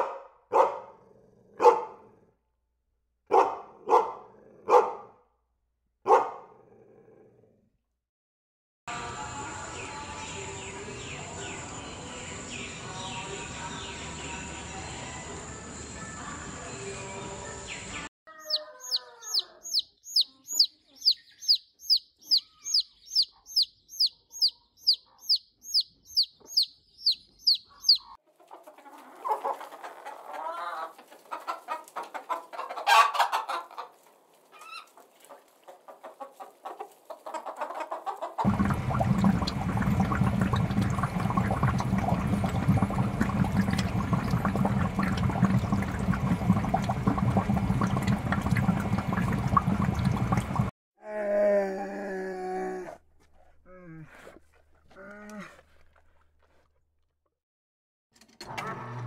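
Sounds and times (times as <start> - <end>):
high falling chirps: 18.4 - 28.2
hens clucking: 18.4 - 49.9
rushing water-like noise: 38.5 - 50.7.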